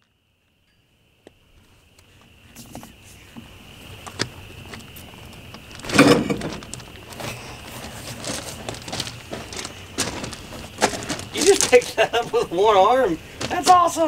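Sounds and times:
tyre scraping and knocking: 0:04.1 - 0:12.5.

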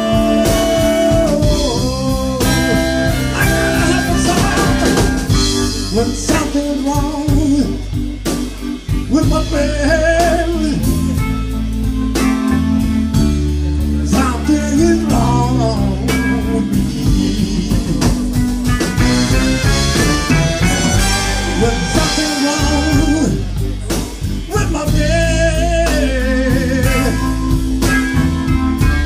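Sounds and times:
bending electric guitar lead: 0:00.0 - 0:29.0
blues-soul band playing: 0:00.0 - 0:29.0.

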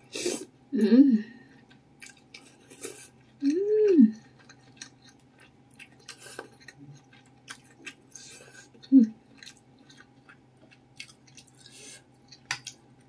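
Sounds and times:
person humming mmm: 0:00.2 - 0:01.4, 0:03.4 - 0:04.2, 0:08.8 - 0:09.2.

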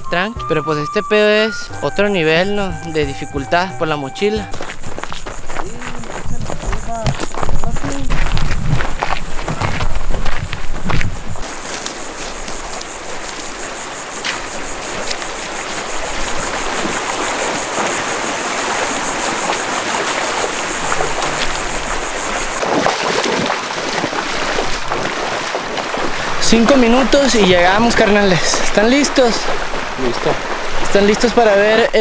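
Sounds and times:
flowing stream water: 0:08.8 - 0:32.0.

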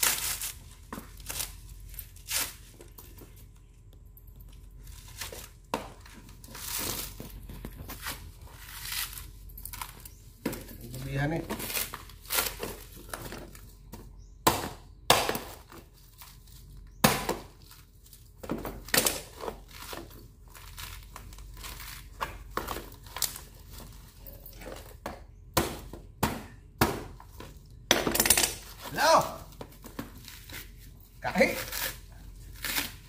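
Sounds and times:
husk fibres tearing: 0:00.0 - 0:02.9, 0:06.3 - 0:10.2, 0:30.2 - 0:33.0
blade chopping coconut husk: 0:13.9 - 0:17.8, 0:25.0 - 0:27.5, 0:30.4 - 0:33.0.

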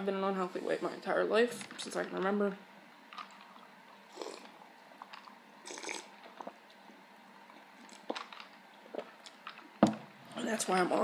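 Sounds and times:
person drinking: 0:03.2 - 0:06.8, 0:07.4 - 0:09.7.

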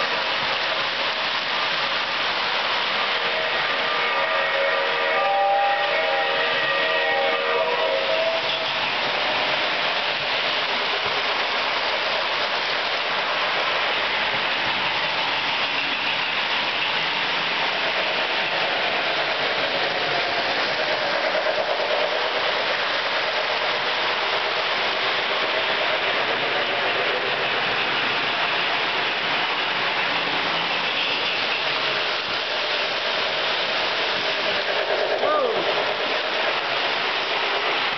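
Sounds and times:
model train motors whirring: 0:00.0 - 0:37.9
metal wheels on rails: 0:08.0 - 0:37.9.

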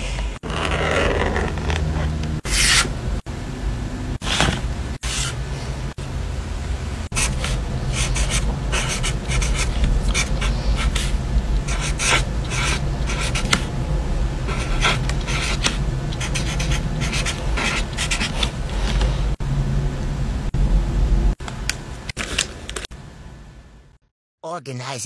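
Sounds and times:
steady low hum: 0:00.0 - 0:24.0
marker scratching on paper: 0:02.4 - 0:02.9, 0:07.2 - 0:13.7, 0:14.5 - 0:18.9.

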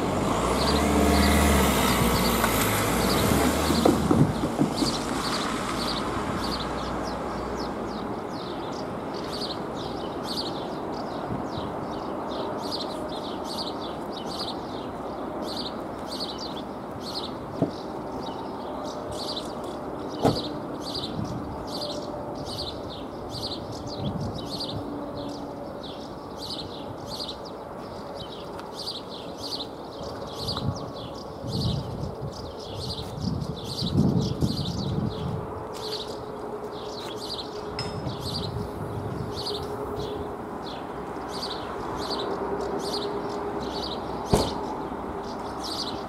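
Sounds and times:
sharp knocks: 0:44.3 - 0:44.6.

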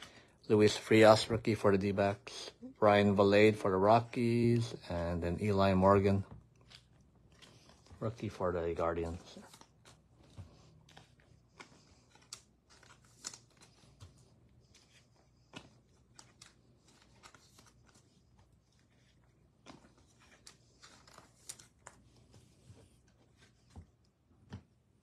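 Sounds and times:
trading cards flicking and tapping: 0:06.2 - 0:24.8.

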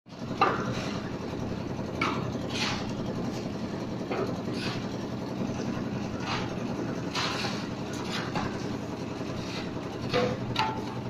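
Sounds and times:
concrete mixer engine running: 0:00.1 - 0:11.0
shovels scraping through gravel: 0:07.1 - 0:08.3.

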